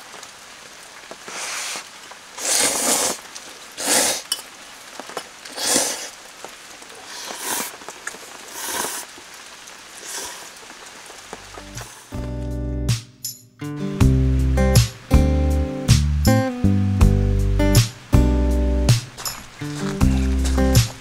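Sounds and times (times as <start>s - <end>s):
rain patter: 0.0s - 21.0s
noodles slurped: 2.4s - 4.4s, 5.4s - 6.2s, 6.9s - 9.2s, 9.9s - 10.6s, 19.2s - 21.0s.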